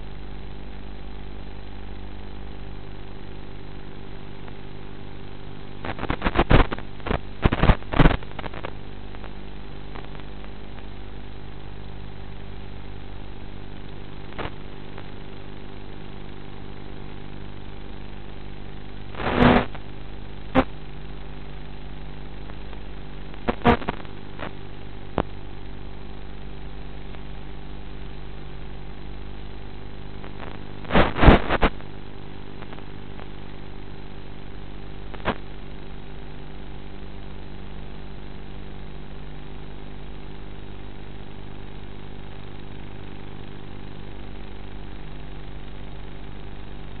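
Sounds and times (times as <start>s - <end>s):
loud crackles: 5.8s - 10.9s, 19.1s - 19.9s, 20.5s - 20.9s, 22.4s - 25.4s, 30.1s - 33.5s, 35.1s - 35.6s.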